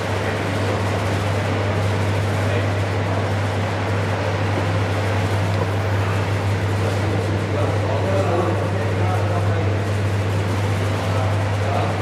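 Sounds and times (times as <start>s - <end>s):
low electric hum: 0.0s - 12.0s
machinery whirring: 0.0s - 12.0s.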